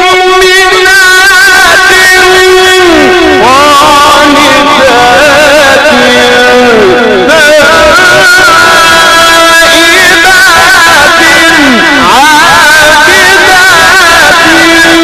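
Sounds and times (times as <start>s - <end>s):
man chanting melodically: 0.0s - 15.0s.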